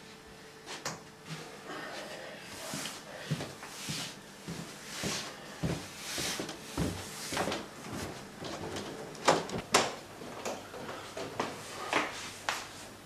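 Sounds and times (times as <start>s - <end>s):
footsteps down stairs: 2.5s - 12.7s.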